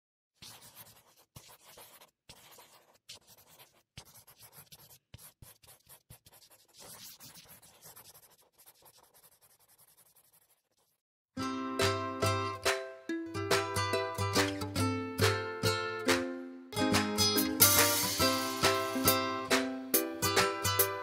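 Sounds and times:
faint scratching: 0.4s - 11.0s.

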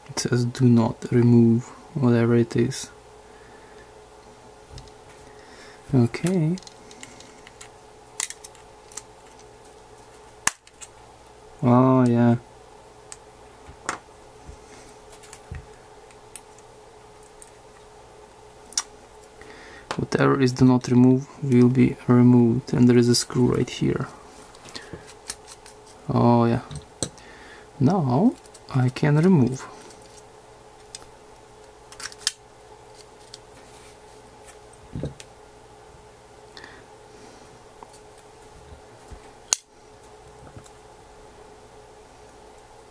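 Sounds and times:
faint steady hum: 0.0s - 42.9s
small parts clicking and tapping: 6.2s - 10.9s.

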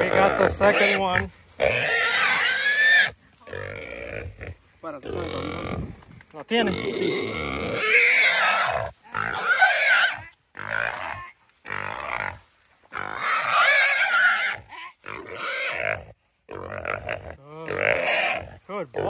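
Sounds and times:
hog squealing: 0.1s - 3.1s, 7.2s - 11.2s.

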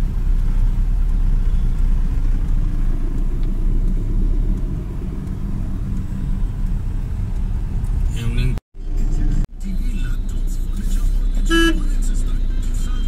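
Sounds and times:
car interior engine and road noise: 0.0s - 13.0s.

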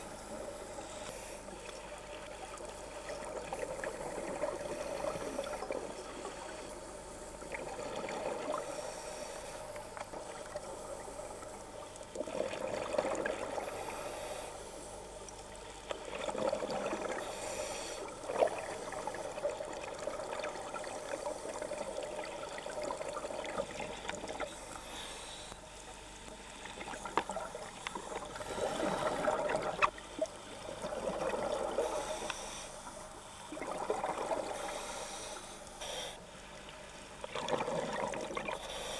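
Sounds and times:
diver breathing through regulator: 8.4s - 10.0s, 13.5s - 15.0s, 17.1s - 18.2s, 23.9s - 27.1s, 27.8s - 29.8s, 30.4s - 36.4s, 37.6s - 38.9s
gurgling exhaled bubbles: 12.2s - 14.0s, 16.0s - 17.3s, 18.2s - 24.5s, 26.8s - 32.2s, 33.5s - 34.8s, 37.3s - 38.6s.

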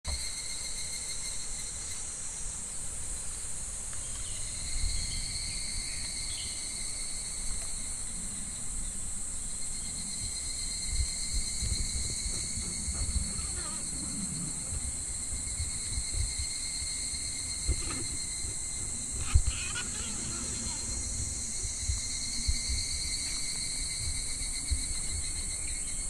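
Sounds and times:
cicadas droning: 0.1s - 26.0s
low rumbles: 10.1s - 25.8s.

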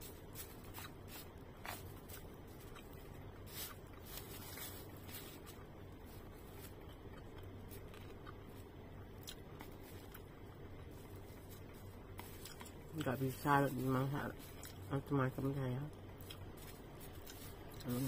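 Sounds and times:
low steady hum: 0.0s - 18.0s
chewing: 6.2s - 13.1s, 14.4s - 14.9s, 16.1s - 17.9s.

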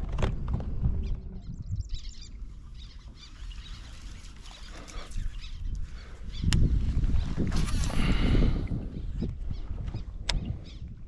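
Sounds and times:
small birds chirping: 0.9s - 7.4s, 8.8s - 11.0s.

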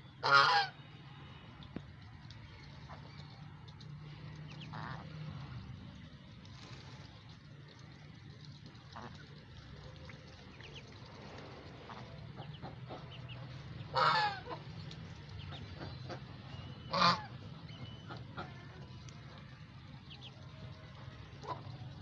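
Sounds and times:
goose honking: 0.2s - 1.0s, 4.7s - 5.5s, 11.9s - 14.7s, 15.6s - 19.1s
geese pecking grain: 0.2s - 22.0s.

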